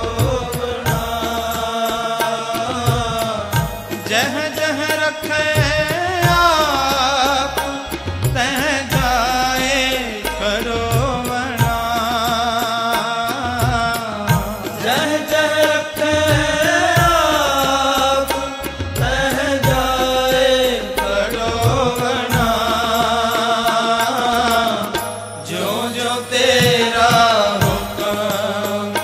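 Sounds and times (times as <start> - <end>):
low drum beats: 0.0 - 2.0, 2.8 - 4.4, 13.5 - 15.1, 16.2 - 23.4, 26.6 - 28.9
person singing a hymn: 0.0 - 29.0.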